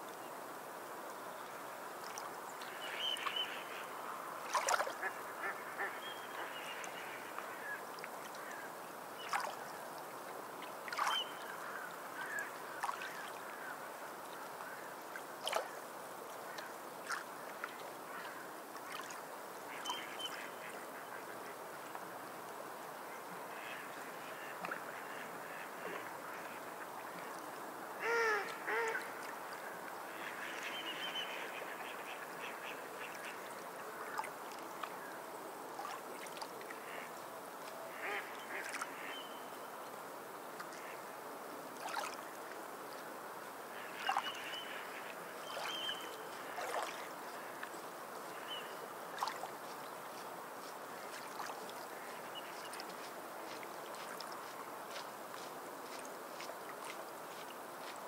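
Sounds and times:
bird calling: 0:28.0 - 0:29.2.

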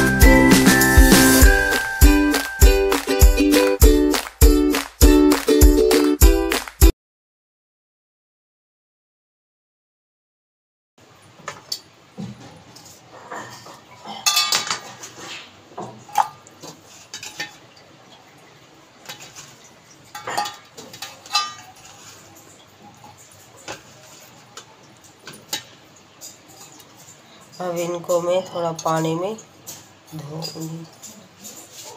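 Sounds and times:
utensils and steel bowl clinking: 0:12.8 - 0:15.4, 0:16.1 - 0:17.7, 0:19.0 - 0:31.9.

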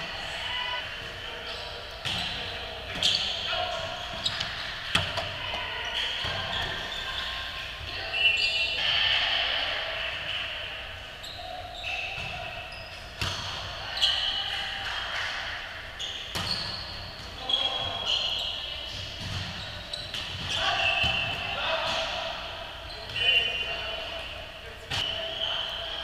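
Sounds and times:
sneakers squeaking on hardwood floor: 0:01.4 - 0:08.8, 0:11.2 - 0:14.4, 0:16.0 - 0:22.0
volleyball hits: 0:02.0 - 0:06.9, 0:12.0 - 0:15.6, 0:16.2 - 0:18.2, 0:18.8 - 0:23.6.

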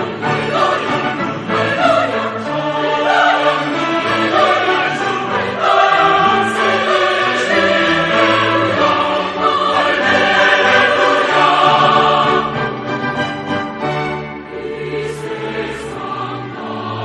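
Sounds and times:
choir singing sacred music: 0:00.0 - 0:17.0.

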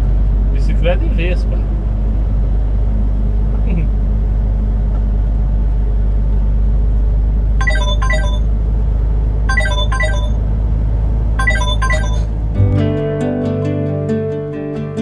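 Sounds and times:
truck engine and road noise: 0:00.0 - 0:15.0
high electronic notes: 0:07.6 - 0:08.5, 0:09.5 - 0:10.4, 0:11.4 - 0:13.0.

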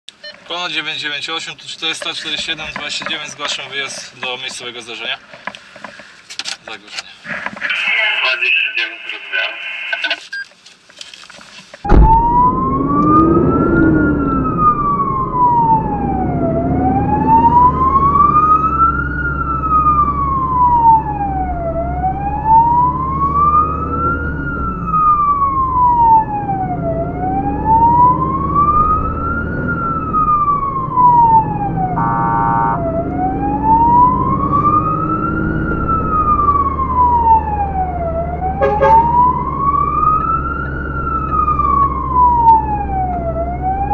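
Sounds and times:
fire engine siren wailing: 0:11.9 - 0:43.9
siren steady blast: 0:11.9 - 0:43.9
truck engine from inside cab: 0:11.9 - 0:43.9.

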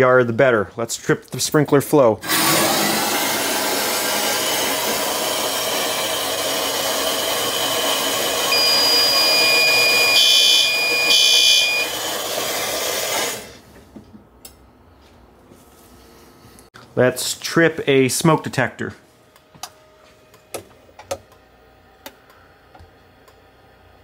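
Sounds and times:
water rushing from valve: 0:02.2 - 0:13.5
short beeps: 0:08.5 - 0:12.0
electronic alarm tone: 0:08.5 - 0:12.2.

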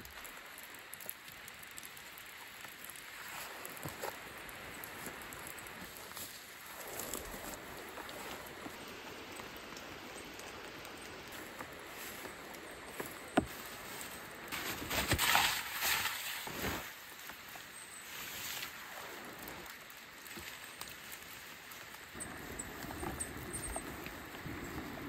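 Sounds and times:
rain patter: 0:00.0 - 0:25.0
tarp rustling: 0:03.1 - 0:08.7, 0:11.3 - 0:25.0.

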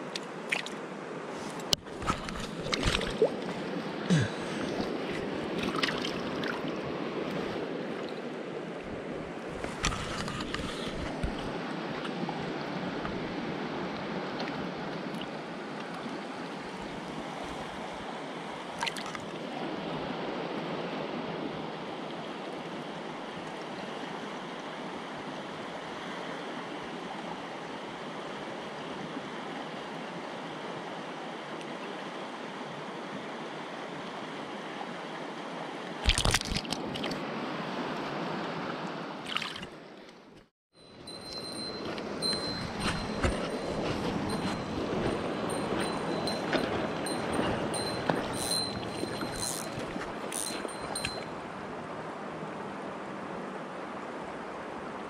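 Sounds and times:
stream flowing over stones: 0:00.0 - 0:08.8, 0:34.0 - 0:37.3, 0:39.2 - 0:39.9, 0:40.9 - 0:55.0.

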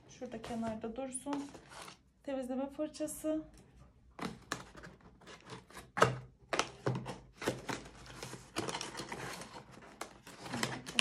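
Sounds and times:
cardboard rustling and scraping: 0:00.3 - 0:02.0, 0:06.8 - 0:11.0.

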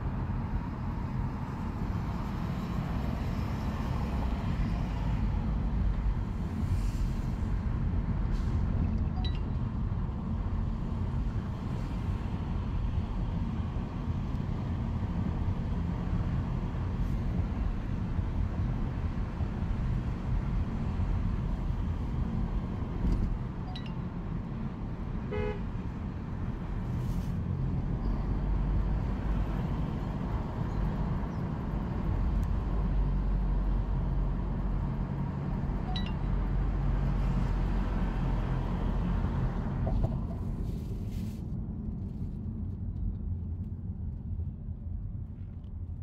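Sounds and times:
car engine and road rumble: 0:00.0 - 0:46.0.

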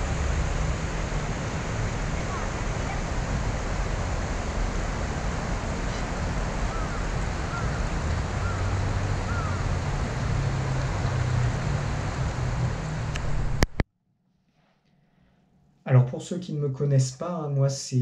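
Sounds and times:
low rumble: 0:00.0 - 0:13.8
wind buffeting microphone: 0:00.0 - 0:13.8.

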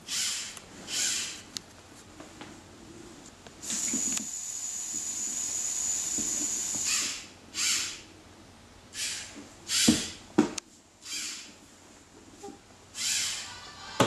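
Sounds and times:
robot electric motors whirring: 0:00.1 - 0:01.4, 0:03.6 - 0:08.0, 0:13.0 - 0:13.6.

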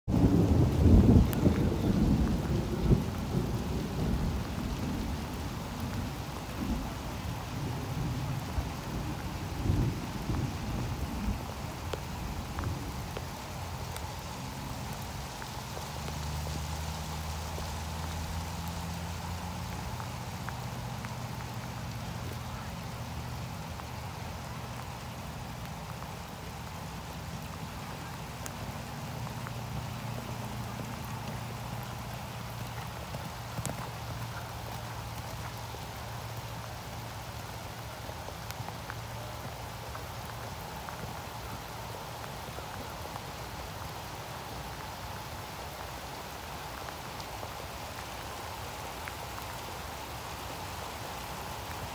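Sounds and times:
wind buffeting microphone: 0:00.1 - 0:15.3.

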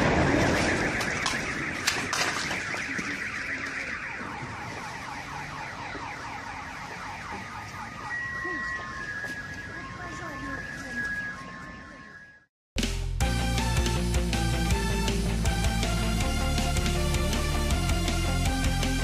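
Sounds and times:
car alarm warbling: 0:00.0 - 0:12.5
steady high tone: 0:07.5 - 0:12.5.

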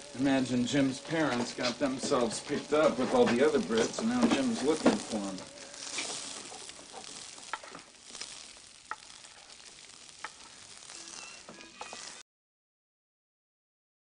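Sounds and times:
rice sizzling in a pot: 0:00.0 - 0:12.2
wooden spoon knocking pot: 0:08.9 - 0:09.2.

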